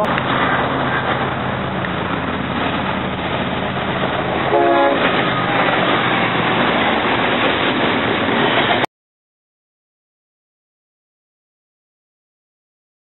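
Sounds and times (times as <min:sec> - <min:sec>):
train wheels rumbling on rail: 0:00.0 - 0:08.9
locomotive air horn blast: 0:04.5 - 0:05.3.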